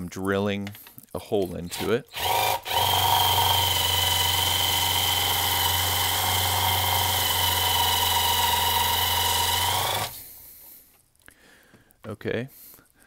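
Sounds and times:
impact driver drilling into screw: 1.4s - 10.2s.

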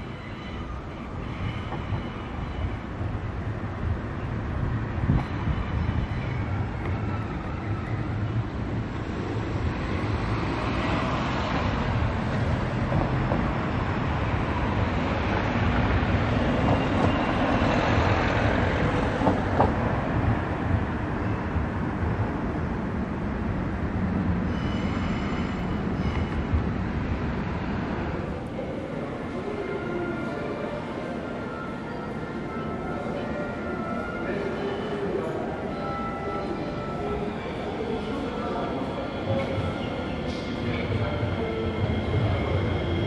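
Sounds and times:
metro train rolling: 0.0s - 43.0s.

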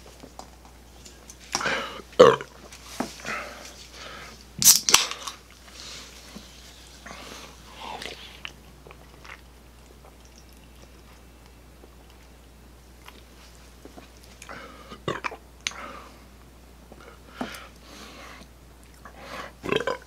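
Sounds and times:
sipping and swallowing fizzy drink: 8.0s - 11.4s.

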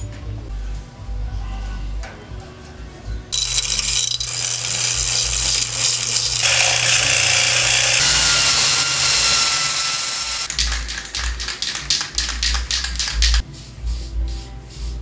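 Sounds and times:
drill bit rasping on grinding stone: 3.4s - 10.5s
electric drill whining into steel: 3.4s - 10.5s
electric motor humming: 3.4s - 10.5s.

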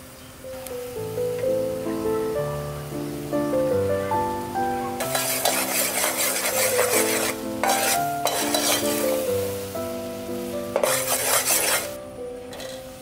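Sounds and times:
background music: 0.8s - 13.0s
sauce sizzling and bubbling: 1.0s - 13.0s
metal spoon scraping pot: 5.0s - 9.0s, 10.8s - 12.8s.

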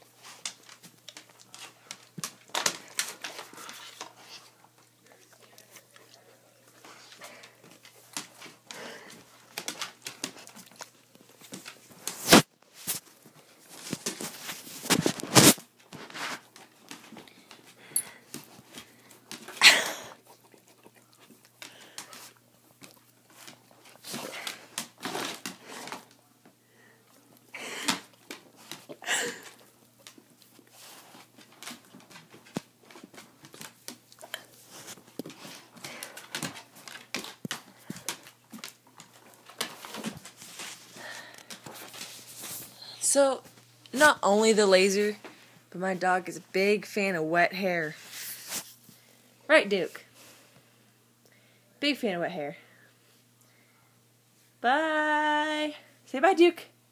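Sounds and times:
dog licking and nibbling: 0.2s - 12.2s, 20.2s - 26.0s, 28.2s - 40.9s.

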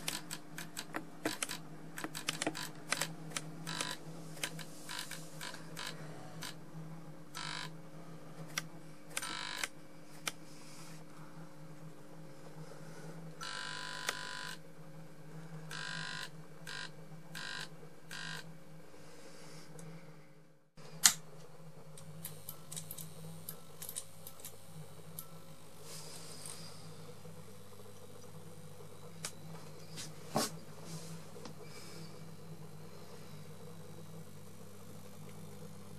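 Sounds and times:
harsh buzzing bursts: 0.0s - 6.6s, 7.3s - 7.7s, 15.7s - 18.5s
fluorescent tube humming: 0.0s - 35.9s.

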